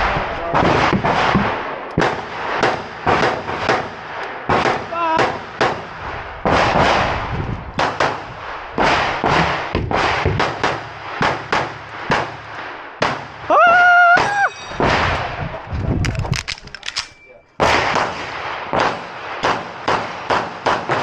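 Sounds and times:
pistol shots echoing: 0:00.0 - 0:07.2, 0:07.8 - 0:13.4, 0:16.5 - 0:21.0
loud steady held tone: 0:14.3 - 0:14.8.

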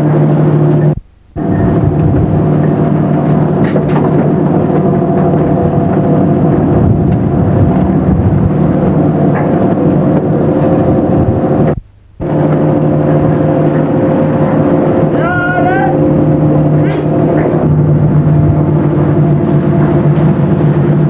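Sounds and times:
boat engine running: 0:00.0 - 0:21.0
wind and sea rushing: 0:00.0 - 0:21.0.

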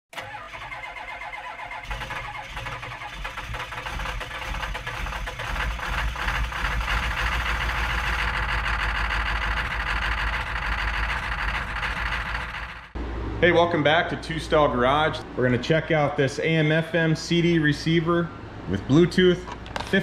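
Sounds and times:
car engine starting and running: 0:00.1 - 0:13.6.

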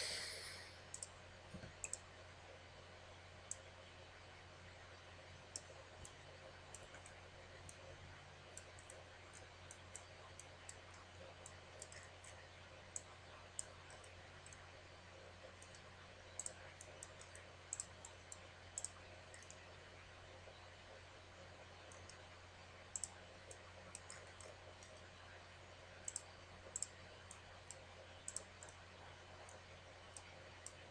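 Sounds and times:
faint low hum: 0:00.0 - 0:30.9
computer mouse buttons clicking: 0:00.9 - 0:02.0, 0:08.6 - 0:12.4, 0:15.6 - 0:19.6, 0:22.9 - 0:25.1, 0:26.0 - 0:28.8.

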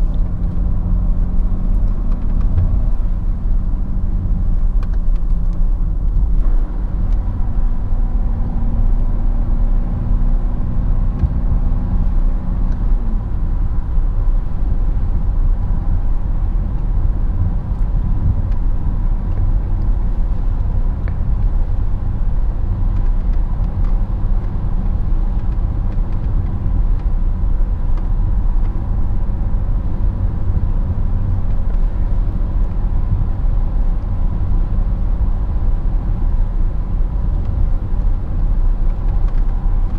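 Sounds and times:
diesel car engine: 0:00.0 - 0:39.9
road rumble inside car: 0:00.0 - 0:39.9.

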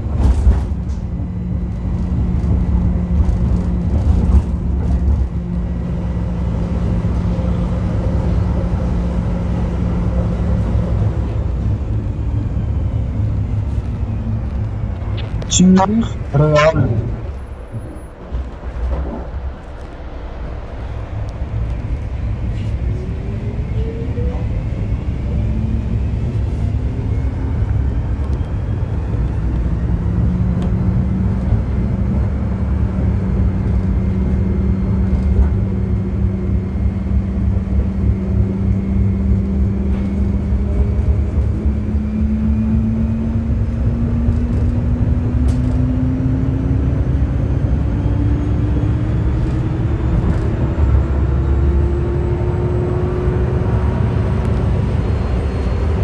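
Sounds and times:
train wheels rumbling on track: 0:00.0 - 0:15.4, 0:17.2 - 0:56.0.

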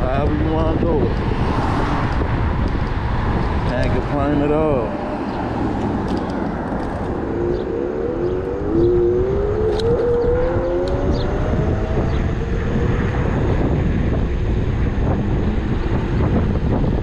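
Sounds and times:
low wind: 0:00.0 - 0:17.0
road rumble: 0:00.0 - 0:17.0
electric scooter motor whining: 0:05.0 - 0:16.7.

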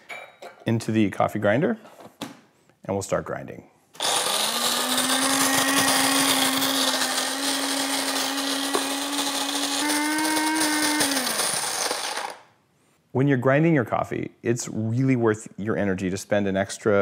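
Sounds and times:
coffee grinder grinding beans: 0:04.0 - 0:12.5.

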